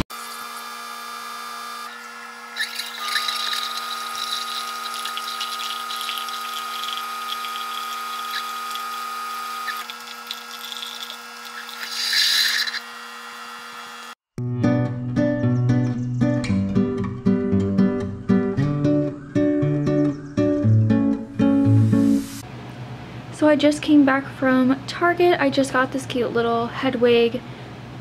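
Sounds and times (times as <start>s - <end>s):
coffee maker pump humming: 0.0s - 14.2s
coffee pouring into mug: 2.6s - 12.6s.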